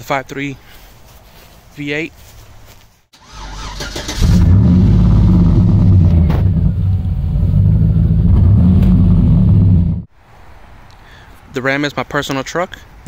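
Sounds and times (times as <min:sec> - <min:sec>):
truck engine idling: 0:05.0 - 0:10.0.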